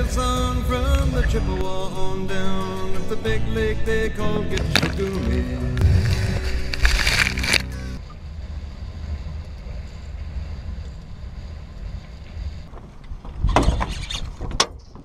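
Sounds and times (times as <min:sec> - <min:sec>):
song: 0:00.6 - 0:08.0.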